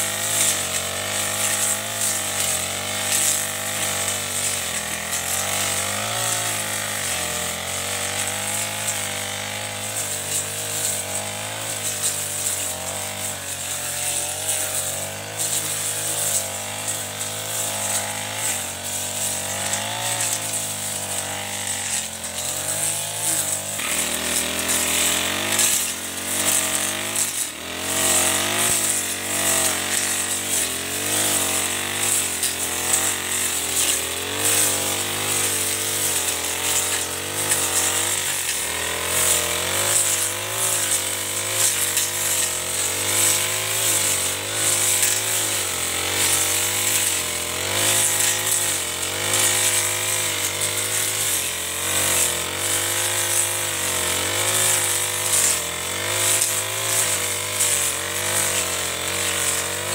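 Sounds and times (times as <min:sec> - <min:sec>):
brush cutter engine running: 0:00.0 - 0:59.9.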